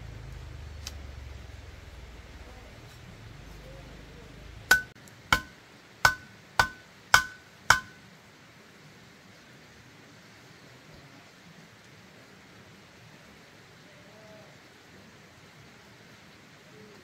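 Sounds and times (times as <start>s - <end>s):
sharp metallic strikes: 4.7s - 8.0s.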